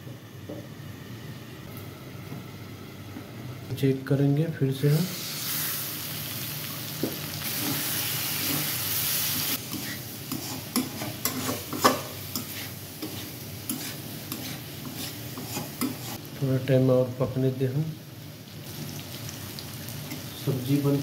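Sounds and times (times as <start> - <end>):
vegetables sizzling in a pan: 4.8 - 21.0
spatula scraping a pan: 7.5 - 16.2.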